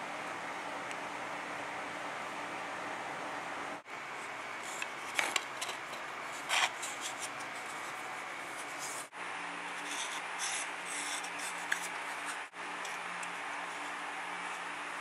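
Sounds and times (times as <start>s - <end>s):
faint hum: 0.0s - 15.0s.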